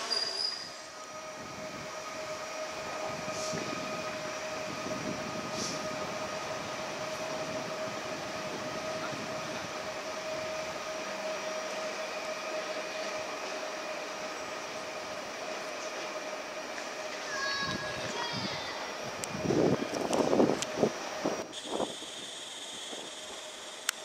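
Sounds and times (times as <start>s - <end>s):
electric train passing: 0.0s - 24.0s
short air hisses: 5.5s - 5.9s.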